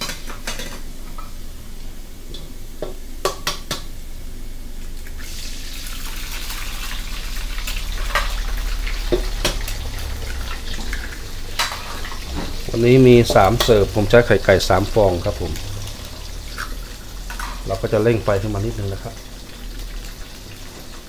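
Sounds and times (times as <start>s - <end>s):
oil sizzling loudly: 4.8s - 21.0s.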